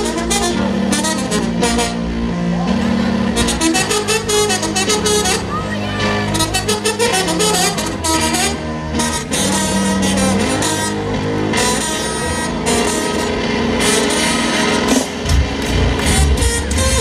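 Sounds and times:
live band music over loudspeakers: 0:00.0 - 0:17.0.

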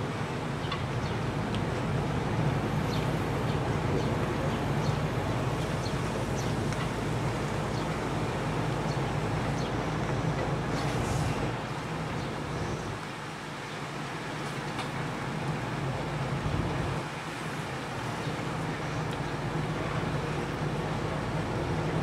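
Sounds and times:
broad rushing noise: 0:00.0 - 0:22.0.

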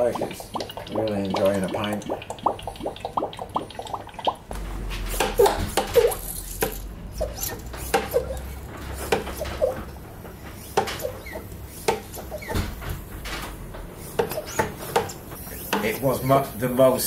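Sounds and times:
oil gurgling through hose: 0:00.0 - 0:09.8.

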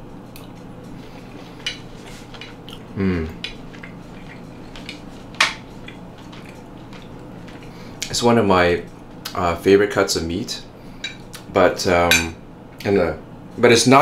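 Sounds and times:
person humming: 0:02.9 - 0:03.4.

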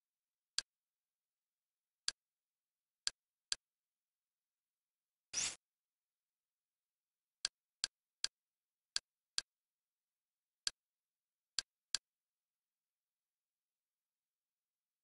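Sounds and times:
menu clicks: 0:05.4 - 0:05.6.

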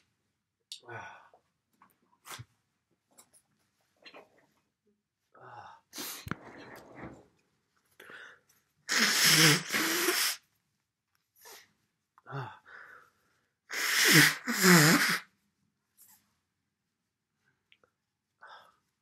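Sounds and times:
sniffs: 0:05.9 - 0:06.4, 0:08.9 - 0:10.4, 0:11.4 - 0:11.8, 0:13.7 - 0:15.3
person blowing nose: 0:08.9 - 0:10.5, 0:13.7 - 0:15.3.

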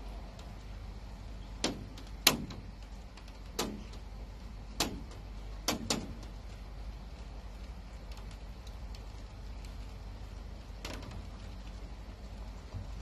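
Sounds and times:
low steady rumble: 0:00.0 - 0:13.0
sharp knocks: 0:01.6 - 0:02.9, 0:03.5 - 0:04.0, 0:04.7 - 0:06.3.

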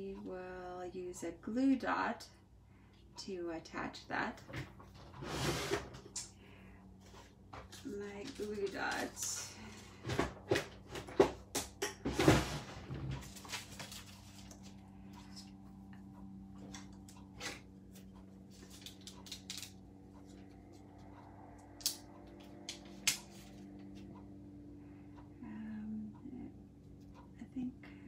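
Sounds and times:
faint steady hum: 0:00.0 - 0:28.0
paper rustling: 0:13.2 - 0:14.8, 0:18.5 - 0:19.7.

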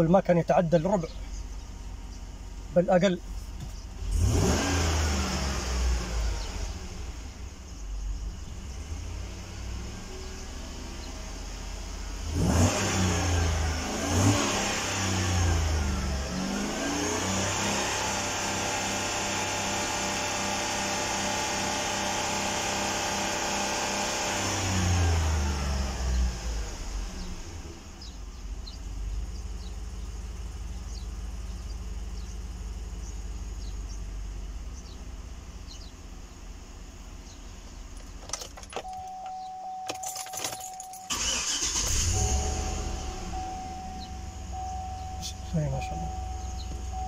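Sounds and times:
car engine revving and idling: 0:00.0 - 0:47.0
warning chime: 0:38.8 - 0:47.0
engine starting: 0:39.9 - 0:43.4.

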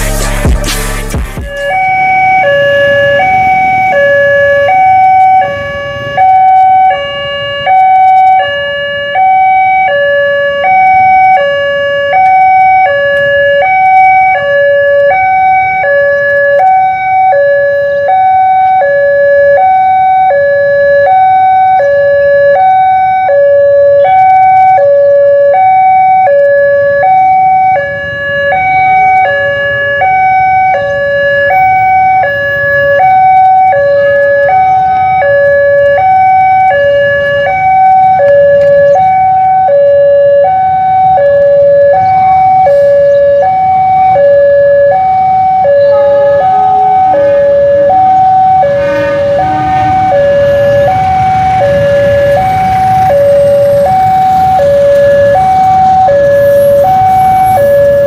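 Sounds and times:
two-tone electronic warning alarm: 0:00.0 - 0:58.0.

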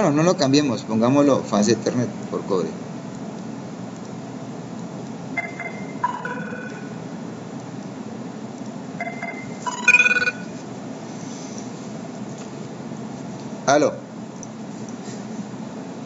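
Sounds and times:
mobile phone ringtone: 0:05.4 - 0:07.0, 0:09.0 - 0:10.6.

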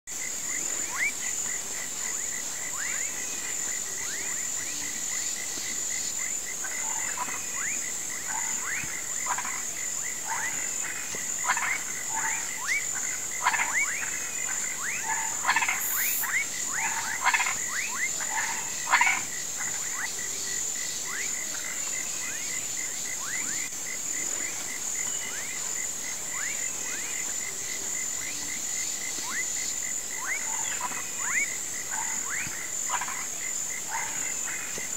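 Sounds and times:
frogs and toads calling: 0:00.1 - 0:34.9
steady high-pitched drone: 0:15.6 - 0:16.4.

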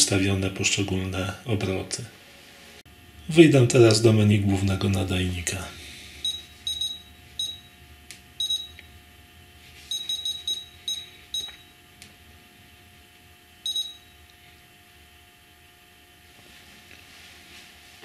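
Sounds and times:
short high-pitched beeps: 0:06.2 - 0:07.8, 0:08.4 - 0:08.8, 0:09.9 - 0:11.7, 0:13.7 - 0:14.2.

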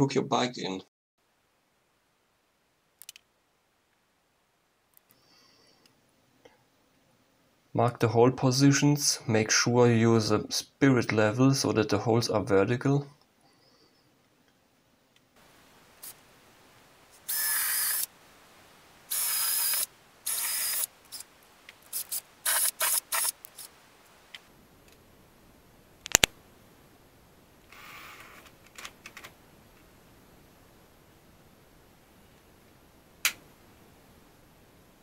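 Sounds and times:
cordless drill boring into drywall: 0:17.3 - 0:18.1, 0:19.1 - 0:21.2, 0:21.9 - 0:23.4.

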